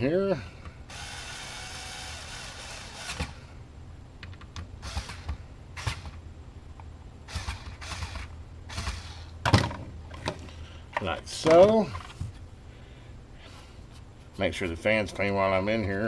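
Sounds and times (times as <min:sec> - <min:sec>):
electric screwdriver running: 0:00.9 - 0:03.4
knocks and clicks of handling: 0:04.2 - 0:04.7, 0:09.4 - 0:12.5.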